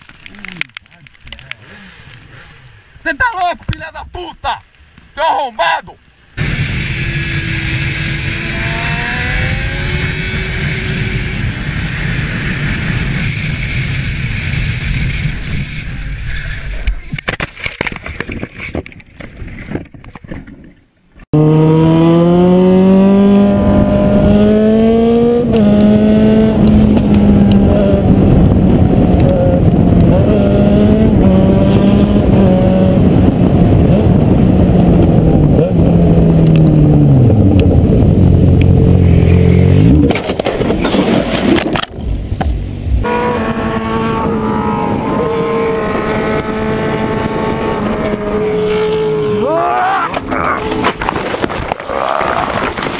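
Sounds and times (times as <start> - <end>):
motorcycle engine revving: 6.4 - 16.1, 21.3 - 51.1
wind noise: 6.4 - 52.9.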